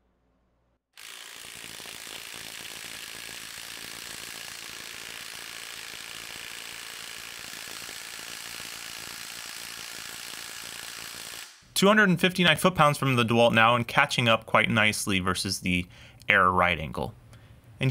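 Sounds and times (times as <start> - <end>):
impact wrench hammering: 1.0 - 11.7.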